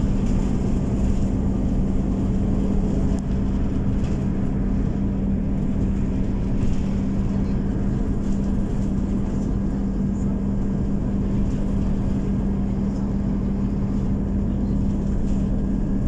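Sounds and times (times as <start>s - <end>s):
bus engine drone: 0.0s - 16.0s
low road rumble: 0.0s - 16.0s.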